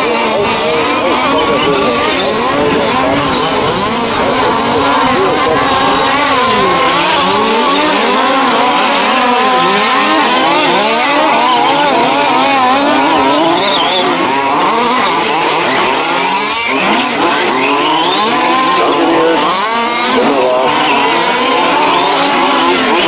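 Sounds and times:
small two-stroke engines racing: 0.0s - 23.0s.

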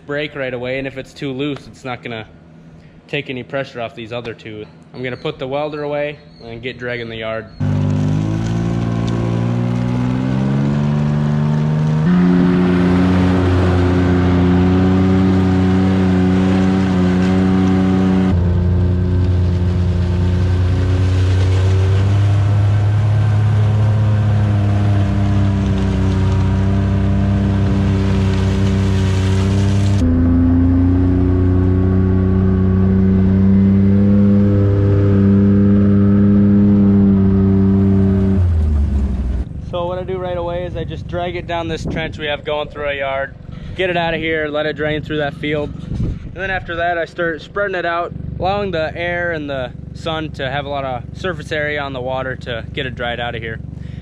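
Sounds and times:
vehicle engine under load: 7.5s - 42.6s.

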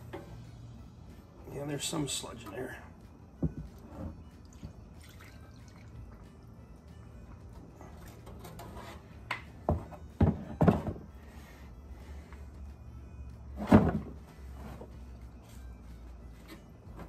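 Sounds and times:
background music: 0.0s - 17.0s
oil pouring and dripping: 3.7s - 6.3s.

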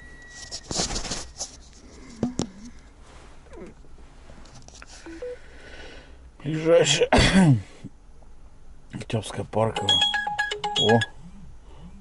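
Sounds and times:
rustling and handling noises: 0.3s - 5.2s
short rising beeps: 5.1s - 5.4s, 9.8s - 11.3s.

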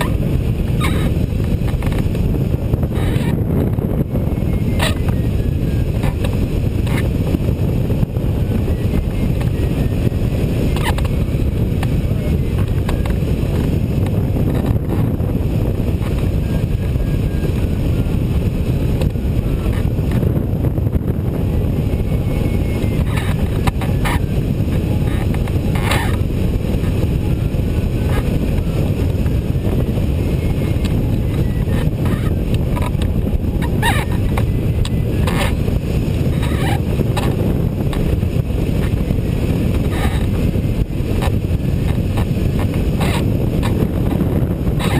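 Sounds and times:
wind buffeting microphone: 0.0s - 44.9s.

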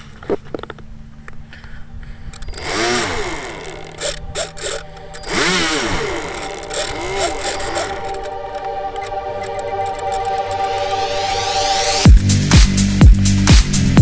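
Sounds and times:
electric motor whine: 2.3s - 12.1s.

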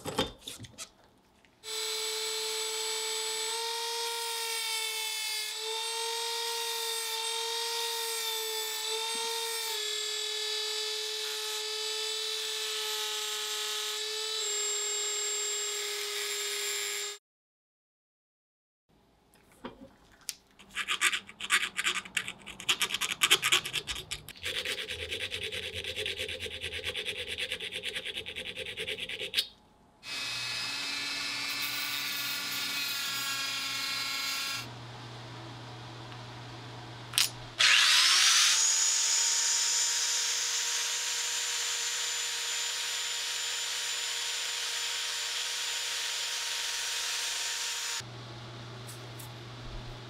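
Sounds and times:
rotary tool whine: 37.2s - 48.1s.

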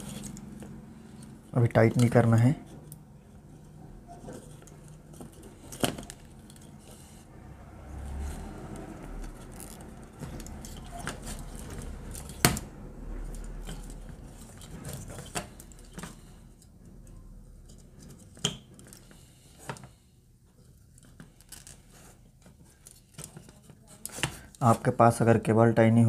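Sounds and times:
light plastic rustling: 17.6s - 24.8s.

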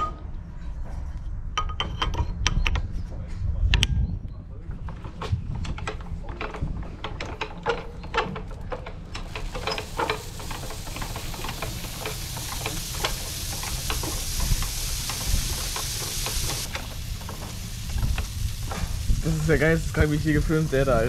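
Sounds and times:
pellets pouring rushing hiss: 9.3s - 21.0s.

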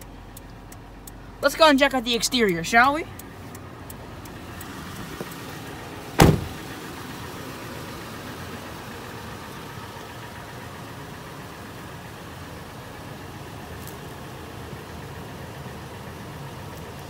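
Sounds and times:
car engine idling: 0.0s - 17.0s
car door slamming: 6.1s - 6.7s.

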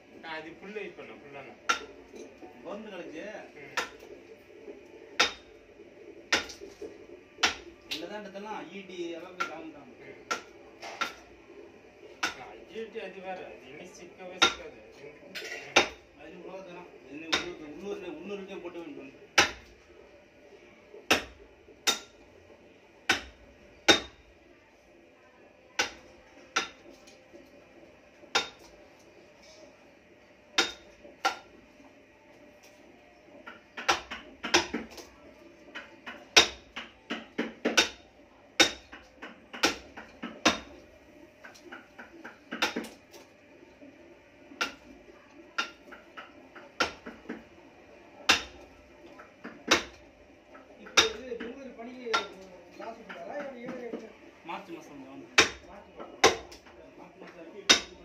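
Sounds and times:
mallet striking a chisel: 1.7s - 2.0s, 3.8s - 4.0s, 5.2s - 5.5s, 6.3s - 6.6s, 7.4s - 8.0s, 10.3s - 11.2s, 12.2s - 12.4s, 14.4s - 14.6s, 15.4s - 16.0s, 19.4s - 19.7s, 21.1s - 22.2s, 23.1s - 24.2s, 25.8s - 26.9s, 28.3s - 28.7s, 30.6s - 31.5s, 33.4s - 35.0s, 35.7s - 38.0s, 38.6s - 40.8s, 42.5s - 43.0s, 44.6s - 44.8s, 48.3s - 48.6s, 49.4s - 50.0s, 50.8s - 51.5s, 52.1s - 52.4s, 55.4s - 56.7s, 57.7s - 58.0s.

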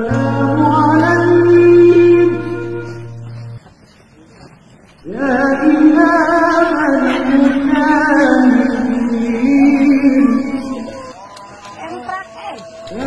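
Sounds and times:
person singing with vibrato: 0.0s - 3.2s, 5.0s - 11.1s.

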